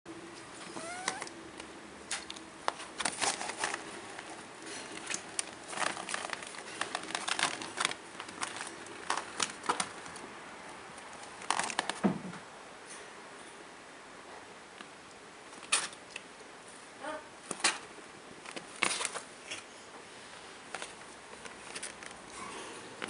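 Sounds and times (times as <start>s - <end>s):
plastic crinkling and crackling: 2.1s - 10.2s, 10.9s - 12.2s, 18.4s - 19.7s, 20.7s - 22.4s.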